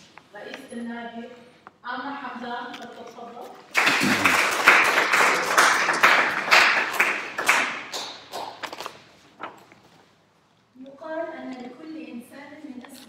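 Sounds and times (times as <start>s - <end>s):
audience clapping: 3.7s - 9.0s.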